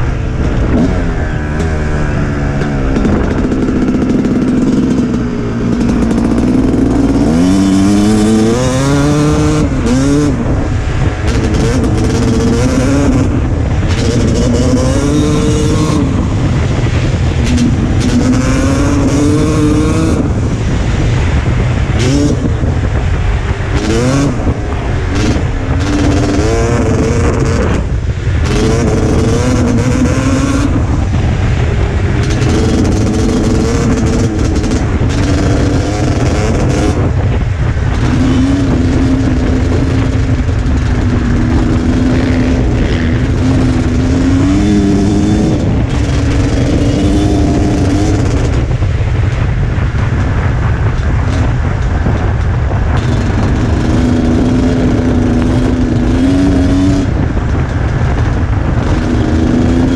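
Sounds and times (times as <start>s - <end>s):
dirt bike engine revving: 0.0s - 59.9s
wind rushing over microphone: 0.0s - 59.9s.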